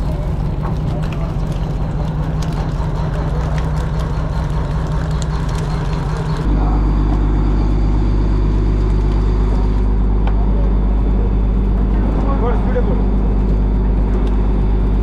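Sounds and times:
boat engine humming: 0.0 - 15.0.

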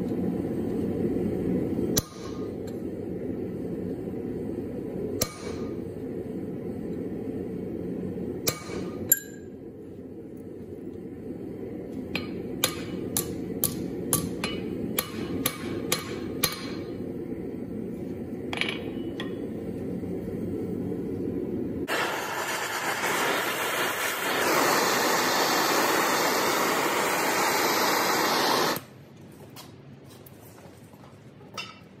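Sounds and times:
hammer striking hot steel on anvil: 1.9 - 2.8, 5.2 - 5.8, 8.4 - 9.5, 12.1 - 17.0, 18.5 - 19.5, 31.6 - 31.9
loud steady hiss: 21.8 - 28.9.

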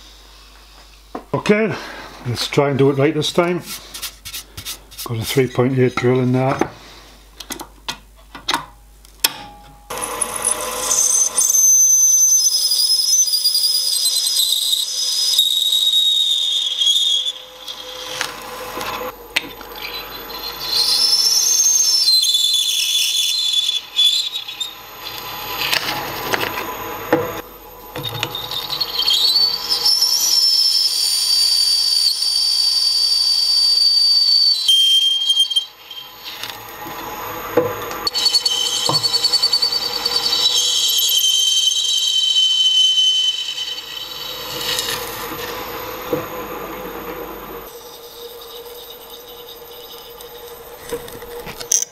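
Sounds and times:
drill bit squealing through steel: 9.9 - 46.2, 47.6 - 51.9.

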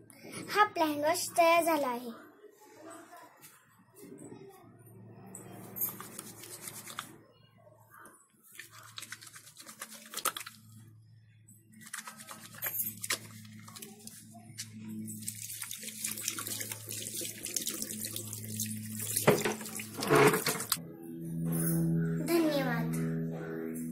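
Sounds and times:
soapy hands rubbing: 5.7 - 7.2, 8.4 - 10.8, 11.8 - 20.8
water running into washbasin: 15.1 - 20.8
water splashes: 15.1 - 20.8.

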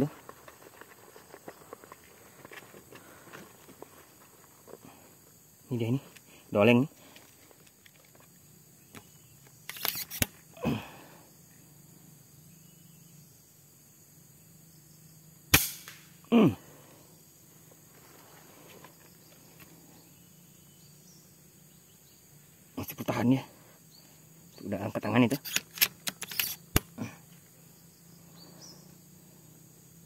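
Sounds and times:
air rifle shots: 15.5 - 16.2.

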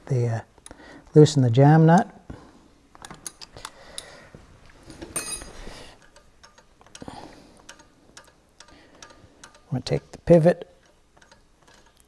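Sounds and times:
metallic ring: 5.1 - 5.6
wrench clicking on metal: 5.1 - 10.2, 10.8 - 12.0.

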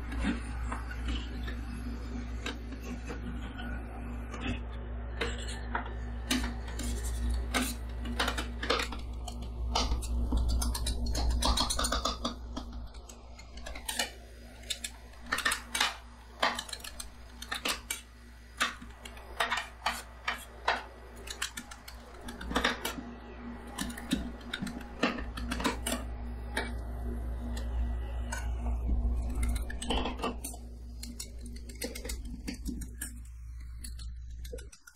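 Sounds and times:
steady low hum: 0.0 - 34.9
metal spatulas clacking and scraping: 13.6 - 18.0.

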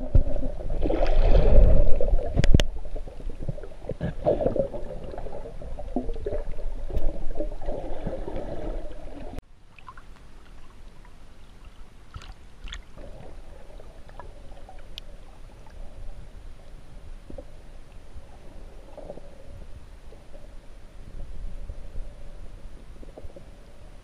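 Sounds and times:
muffled underwater rumble: 0.0 - 9.4, 12.8 - 24.0
light water splashes: 4.3 - 15.8.

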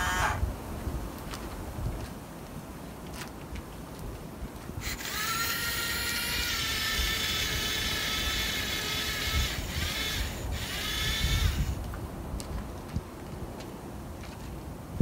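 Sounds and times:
toy electric motors whining: 0.0 - 0.4, 4.8 - 11.8.

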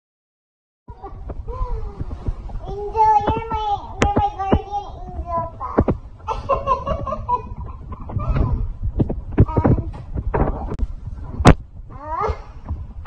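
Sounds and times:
voices: 1.0 - 8.7.

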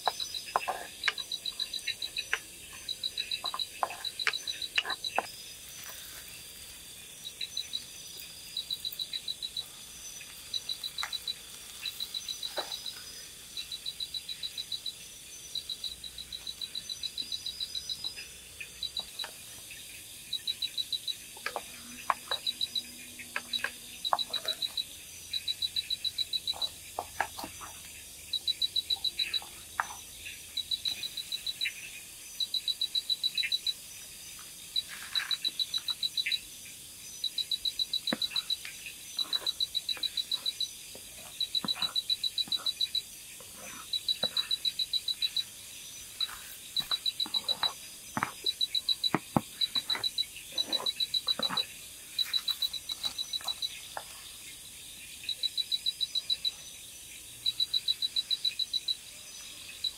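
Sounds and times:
animal chirping: 0.0 - 5.4, 7.2 - 33.9, 37.2 - 54.0
spatula scraping clay pot: 49.6 - 51.7.

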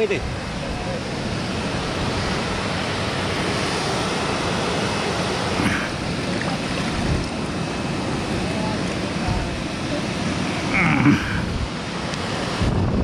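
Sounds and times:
river water rushing: 0.0 - 12.9.

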